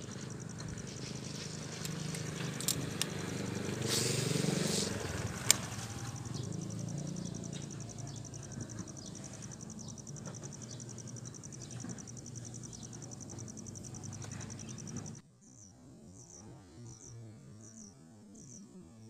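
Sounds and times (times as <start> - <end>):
low wind rumble: 0.0 - 15.1
insect trilling: 0.0 - 19.0
sharp click: 5.4 - 5.9.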